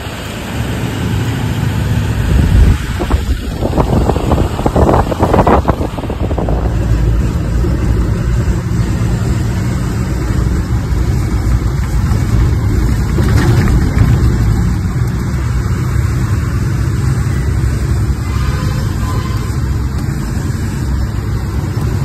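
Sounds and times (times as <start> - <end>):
truck diesel engine hum: 0.0 - 22.0
knocks and rustling: 11.1 - 15.6.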